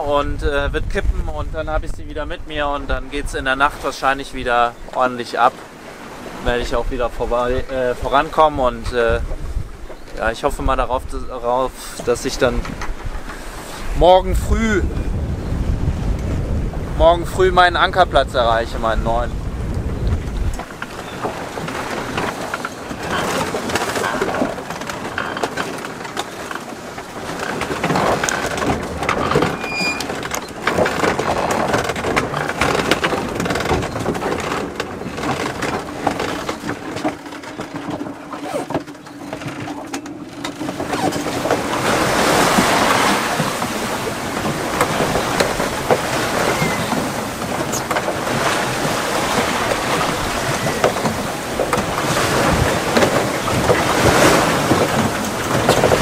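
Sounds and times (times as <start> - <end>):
waves splashing against hull: 0.0 - 56.0
wind: 0.0 - 56.0
clicks and knocks: 20.1 - 41.9.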